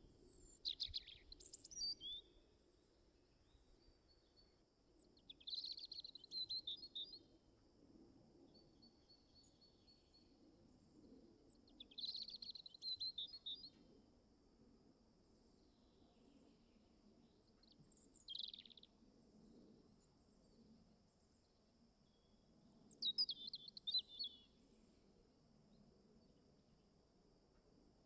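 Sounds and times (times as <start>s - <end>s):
small songbird singing: 0.0s - 2.4s, 3.4s - 7.3s, 11.5s - 13.8s, 17.5s - 18.9s, 22.0s - 24.6s.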